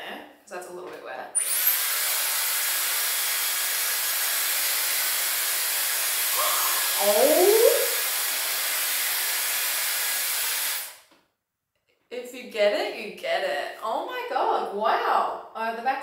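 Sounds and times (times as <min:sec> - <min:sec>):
hair styler blowing air: 0:01.4 - 0:11.1.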